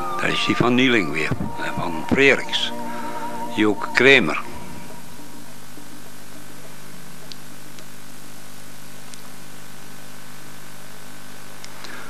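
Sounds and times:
low hum: 0:00.0 - 0:12.0
tape hiss: 0:00.0 - 0:12.0
faint clicks: 0:11.6 - 0:12.0.

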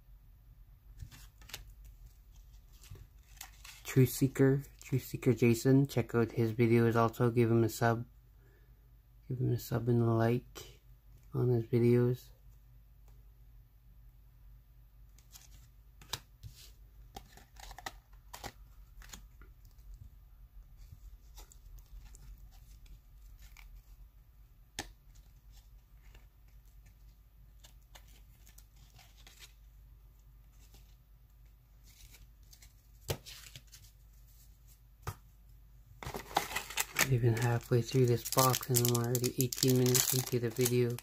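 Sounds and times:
cards peeled apart and shuffled: 0:01.0 - 0:04.2, 0:15.2 - 0:19.9, 0:24.8 - 0:29.7, 0:31.8 - 0:33.9, 0:36.0 - 0:41.0
wrapper tearing and crinkling: 0:36.1 - 0:41.0.

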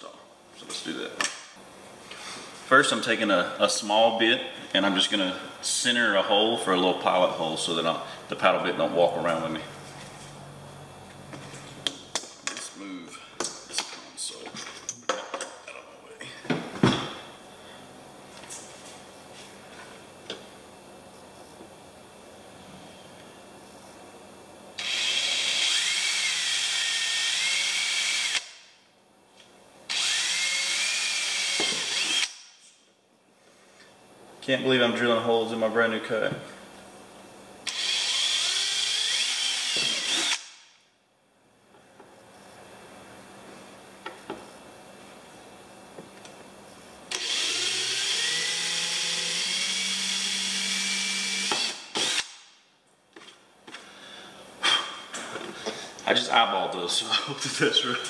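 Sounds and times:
power drill whining: 0:24.8 - 0:28.5, 0:29.9 - 0:32.4, 0:37.7 - 0:40.5, 0:47.1 - 0:52.4.

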